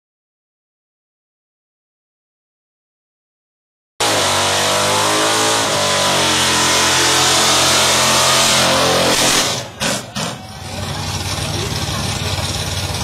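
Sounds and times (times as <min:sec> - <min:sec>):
car engine at high revs: 0:04.0 - 0:13.0.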